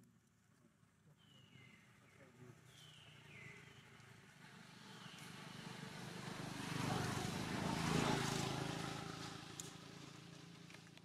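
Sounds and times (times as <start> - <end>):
vehicle engine approaching: 4.4 - 11.0.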